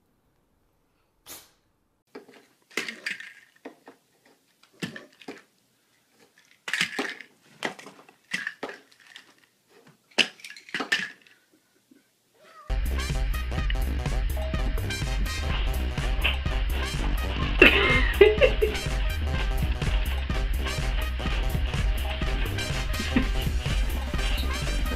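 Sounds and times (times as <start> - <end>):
plastic pill bottles rattling: 2.1 - 11.5.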